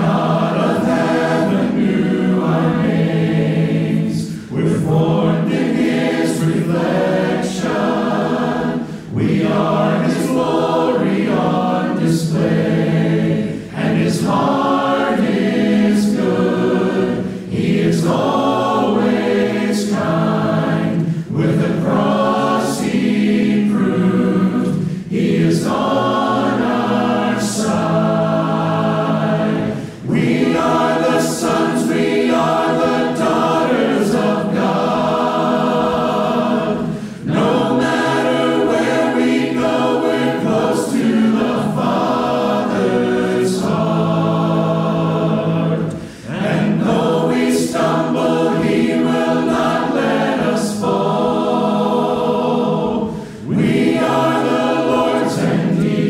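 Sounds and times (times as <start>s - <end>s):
choir singing a hymn: 0.0s - 56.0s.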